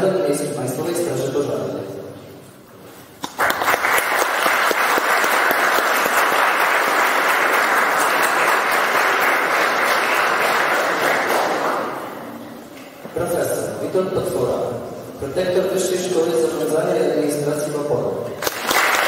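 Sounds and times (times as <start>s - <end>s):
audience applauding: 3.2s - 12.3s, 18.4s - 19.0s.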